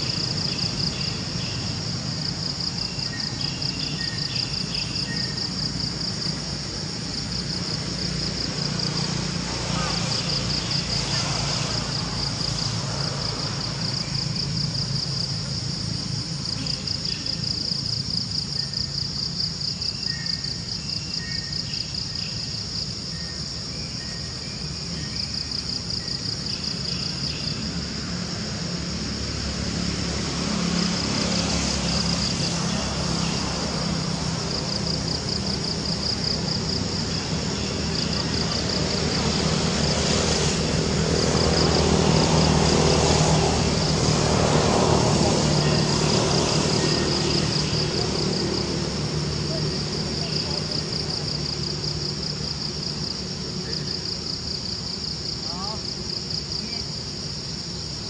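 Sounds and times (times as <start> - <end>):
insects chirring: 0.0 - 58.0
low engine hum: 24.2 - 56.1.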